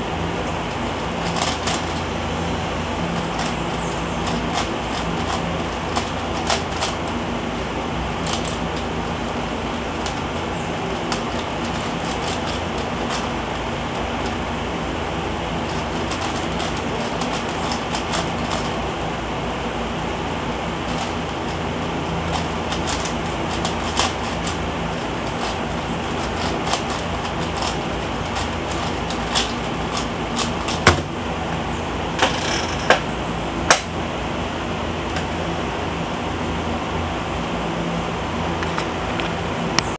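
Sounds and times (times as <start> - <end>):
puzzle cube layers clicking: 3.2 - 7.2, 15.6 - 18.8, 20.8 - 31.1
cube knocking down on surface: 30.7 - 31.2.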